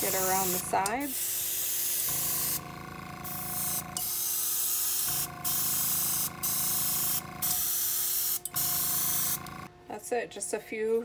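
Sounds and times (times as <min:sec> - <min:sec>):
airbrush spraying hiss: 0:00.0 - 0:02.6
steady hum: 0:00.0 - 0:10.6.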